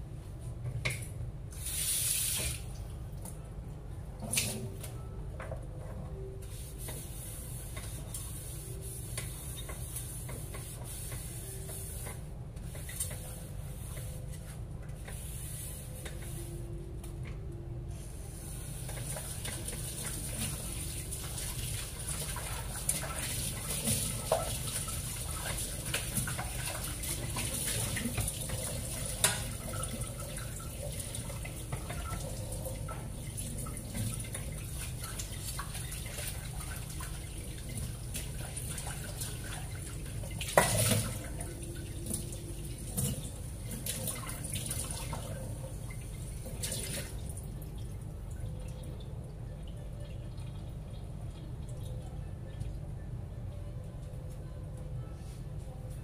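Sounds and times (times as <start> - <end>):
tap water running into sink: 18.8 - 47.2.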